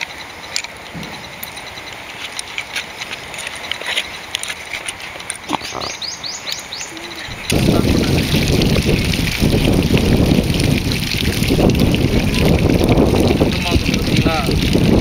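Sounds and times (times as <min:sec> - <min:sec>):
bird chirping: 0:00.0 - 0:07.9
snail shells clicking: 0:02.2 - 0:05.9
water pouring: 0:07.1 - 0:15.0.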